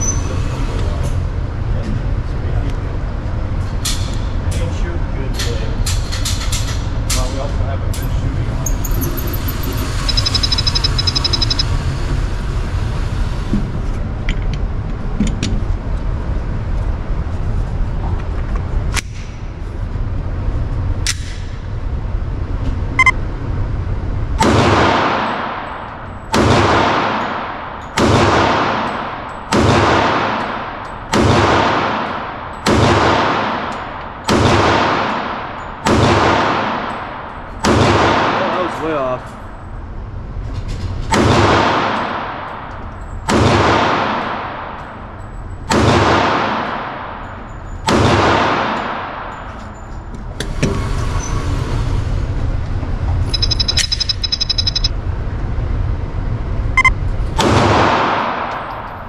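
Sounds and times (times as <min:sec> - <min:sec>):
short beep: 0:10.0 - 0:11.7, 0:53.3 - 0:54.9
pistol shots echoing: 0:24.4 - 0:38.8, 0:41.2 - 0:44.9, 0:45.7 - 0:47.2, 0:47.9 - 0:49.4.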